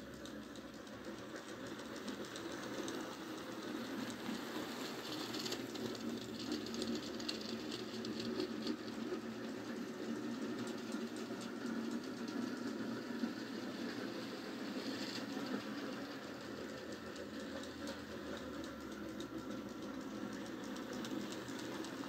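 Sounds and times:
model train motor whirring: 0.0s - 22.0s.

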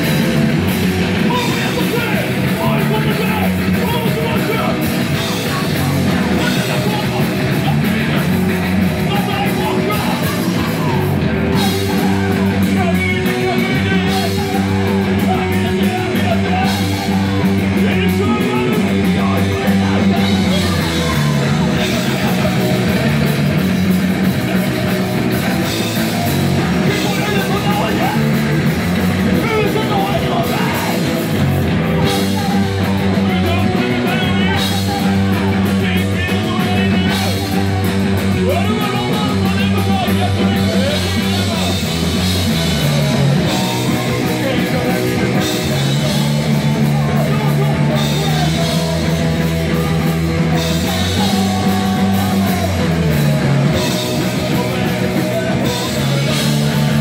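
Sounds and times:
bass guitar: 0.0s - 57.0s
distorted electric guitar: 0.0s - 57.0s
drum kit: 0.0s - 57.0s
person singing and yelling: 0.0s - 57.0s.

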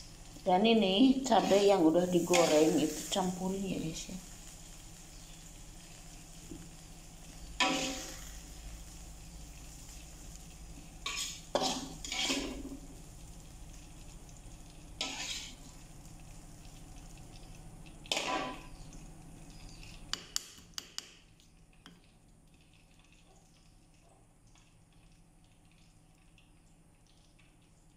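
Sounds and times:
steady low hum: 0.0s - 20.4s
metal spoon scraping stone mortar: 15.0s - 15.6s.

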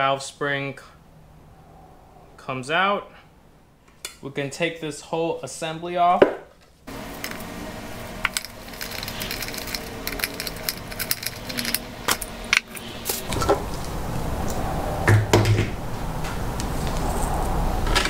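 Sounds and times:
metal tool clinks and rattles: 8.2s - 13.6s
loud metal knocks: 15.0s - 15.8s.

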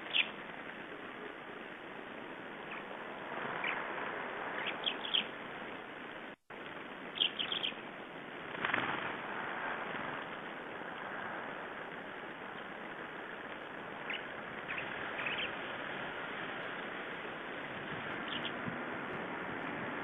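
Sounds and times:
songbirds calling: 0.0s - 1.7s, 2.6s - 5.4s, 7.1s - 7.8s, 12.4s - 16.2s, 17.8s - 18.7s
background hiss: 0.0s - 20.0s.

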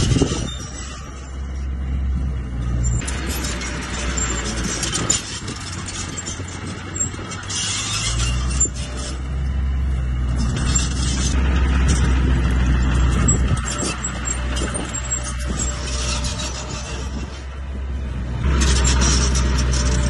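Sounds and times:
bulldozer diesel engine running: 0.0s - 20.0s
steel tracks clanking through rock: 2.6s - 9.5s, 10.1s - 17.5s, 18.4s - 20.0s.

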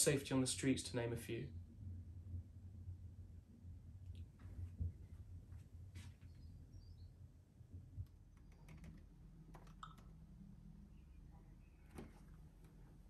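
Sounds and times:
laptop keyboard typing clicks: 8.4s - 10.2s.

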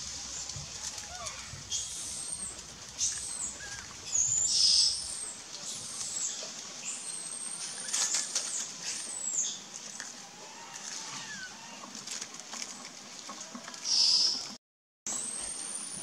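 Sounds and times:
high thin whistling calls: 1.2s - 9.6s, 13.9s - 14.4s.

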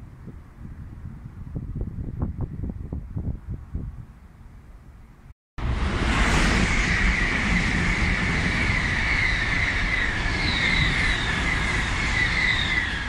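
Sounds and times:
high-pitched pulsing whine: 5.6s - 13.0s
high-speed train passing: 5.6s - 13.0s.

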